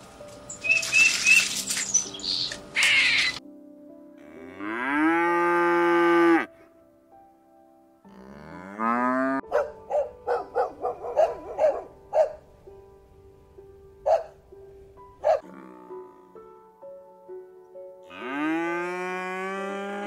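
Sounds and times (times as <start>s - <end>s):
cow mooing: 4.2s - 6.5s, 8.1s - 9.4s, 15.4s - 16.4s, 18.1s - 20.0s.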